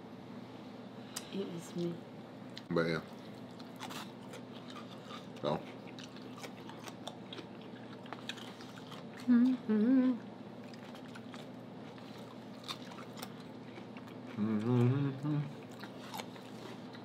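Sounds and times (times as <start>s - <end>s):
chewing and mouth clicks: 2.5s - 9.6s, 10.6s - 17.0s
person humming mmm: 9.2s - 10.3s, 14.3s - 15.8s.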